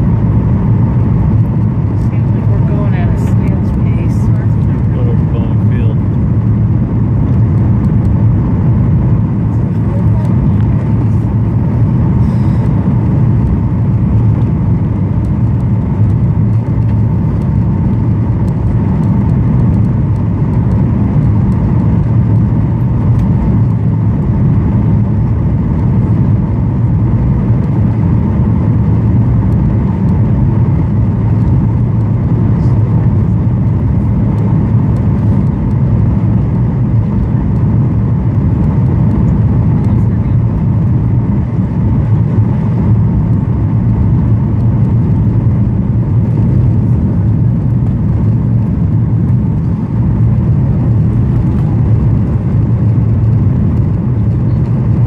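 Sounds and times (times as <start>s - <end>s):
airflow past fuselage: 0.0s - 20.2s
faint steady hum: 0.0s - 55.0s
jet engine rumble in cabin: 0.0s - 55.0s.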